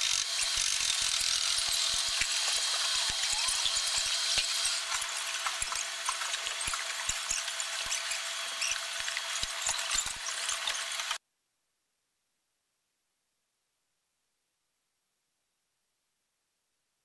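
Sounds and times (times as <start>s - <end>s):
hand tools clicking and clattering: 0.0s - 11.2s.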